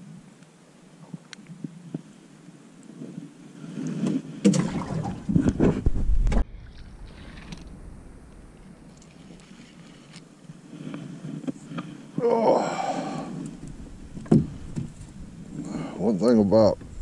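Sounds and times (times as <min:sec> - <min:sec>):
faint fish splashes: 0:04.4 - 0:05.5
deep rumble: 0:04.6 - 0:09.0
rustling and knocking of fishing gear: 0:05.2 - 0:06.5, 0:13.3 - 0:15.2.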